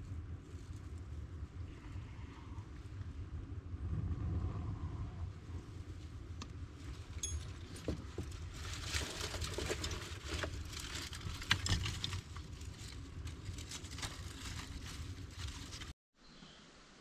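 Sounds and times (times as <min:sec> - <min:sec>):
steady low rumble: 0:00.0 - 0:16.0
fire crackling and popping: 0:05.4 - 0:15.9.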